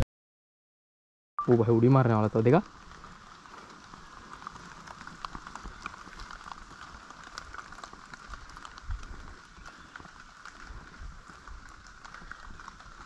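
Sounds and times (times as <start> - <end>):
wind rumbling on microphone: 1.7 - 13.0
small ticks: 2.6 - 13.0.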